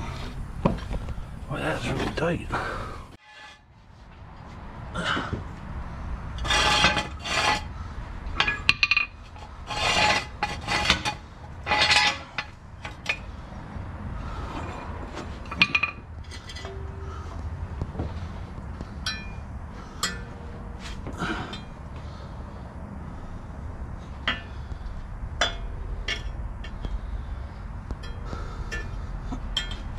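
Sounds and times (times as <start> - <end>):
metallic rasping: 3.2 - 3.7, 6.4 - 7.8, 8.4 - 13.5, 14.3 - 17.4, 18.2 - 21.8.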